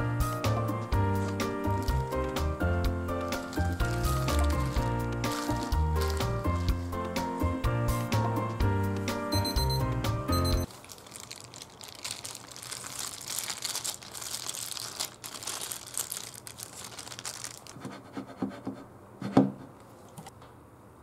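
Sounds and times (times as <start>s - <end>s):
plastic bag crinkling: 1.1s - 7.0s, 10.7s - 17.8s.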